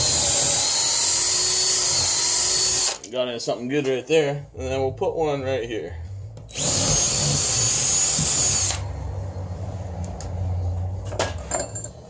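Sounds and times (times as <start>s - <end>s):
cordless drill boring into wood: 0.0s - 3.0s, 6.5s - 8.8s.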